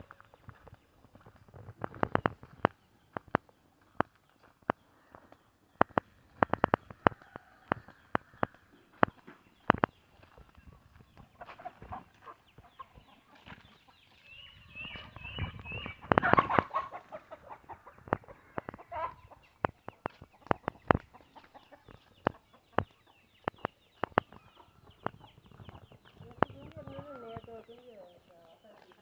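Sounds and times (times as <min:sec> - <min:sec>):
chickens clucking: 0:00.0 - 0:29.0
footsteps on twigs and leaves: 0:00.0 - 0:29.0
high chirps: 0:14.3 - 0:16.8.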